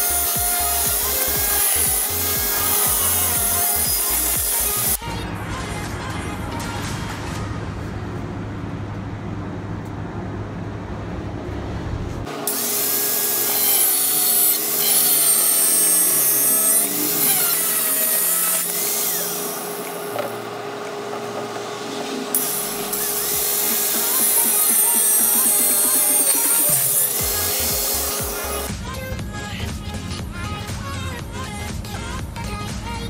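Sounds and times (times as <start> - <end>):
angle grinder cutting metal: 0.0 - 5.0, 12.3 - 28.7
grinder motor whine: 0.0 - 5.0, 12.3 - 28.7.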